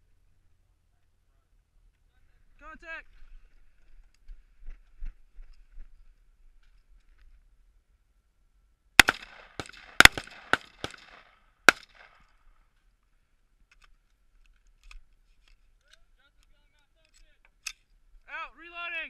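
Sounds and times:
rifle shots echoing: 0:09.0 - 0:12.3.

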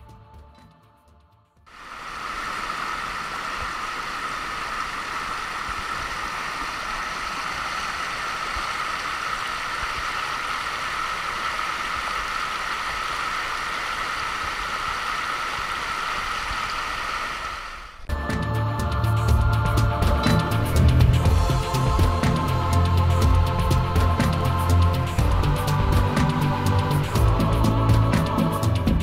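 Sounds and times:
river rushing over rocks: 0:01.7 - 0:17.8.

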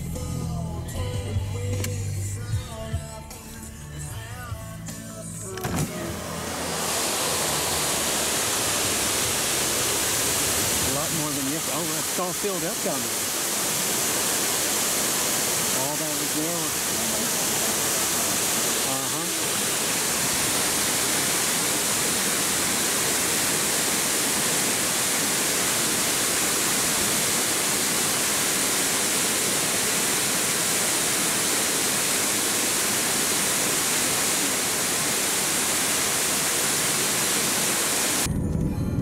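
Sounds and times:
waterfall rushing: 0:05.6 - 0:38.3.

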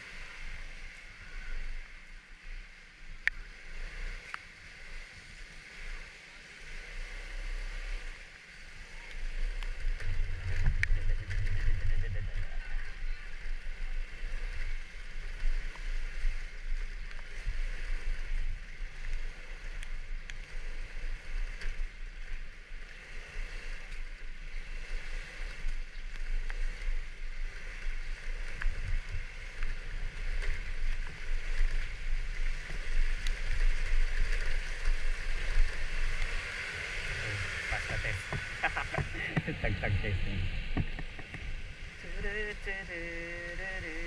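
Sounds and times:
low engine rumble: 0:06.7 - 0:44.0
wind rushing: 0:35.6 - 0:42.0.

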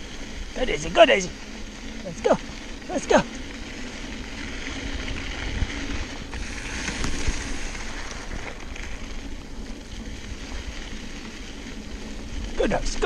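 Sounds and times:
bike tyres rolling on dirt: 0:00.0 - 0:13.0.

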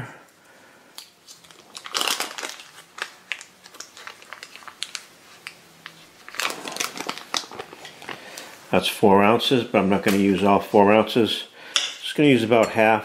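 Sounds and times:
paper wrapper crinkling: 0:01.0 - 0:08.6.

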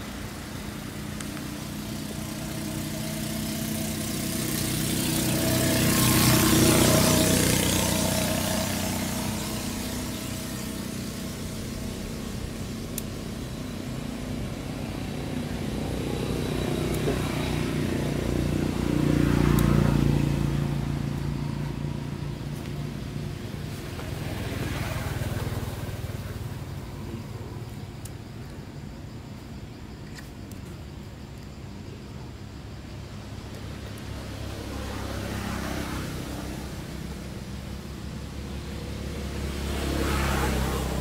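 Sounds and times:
vehicle passing: 0:00.0 - 0:28.0, 0:33.0 - 0:41.0
vehicle engines humming: 0:00.0 - 0:41.0.

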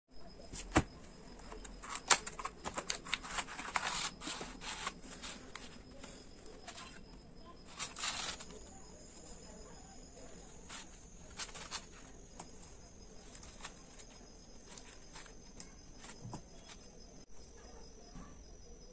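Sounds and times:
pastel sticks set on paper: 0:00.6 - 0:07.0, 0:07.6 - 0:09.4, 0:10.3 - 0:16.8
plastic tray sliding: 0:01.6 - 0:07.0, 0:07.7 - 0:08.7
cardboard box opening: 0:07.7 - 0:08.6.

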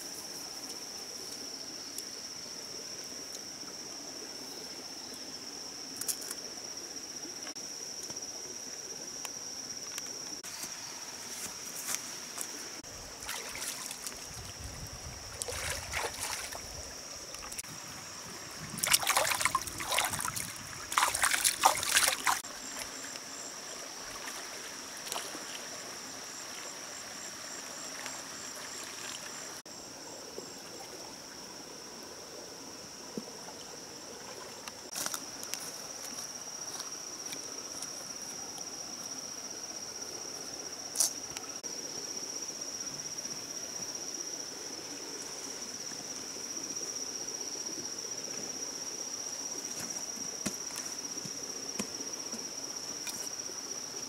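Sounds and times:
stream trickling: 0:00.3 - 0:54.0
water splashing: 0:13.1 - 0:14.6, 0:15.2 - 0:17.7, 0:18.5 - 0:23.0, 0:27.9 - 0:29.6.

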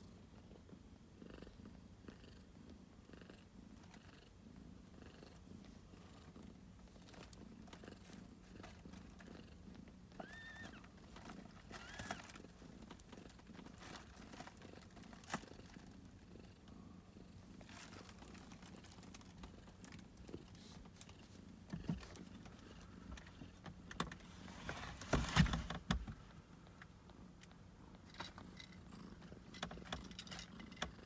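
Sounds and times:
cat purring softly: 0:00.0 - 0:25.0, 0:26.4 - 0:31.0
small clicks and rustles: 0:05.6 - 0:09.5, 0:10.1 - 0:16.2, 0:17.6 - 0:31.0.

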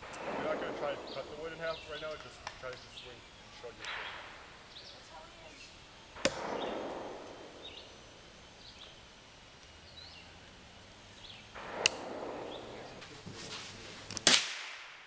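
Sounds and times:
hatchet chopping log: 0:06.2 - 0:06.5.

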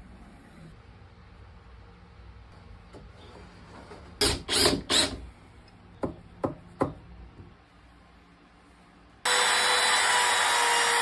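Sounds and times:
drill running: 0:04.2 - 0:05.2, 0:09.3 - 0:11.0.

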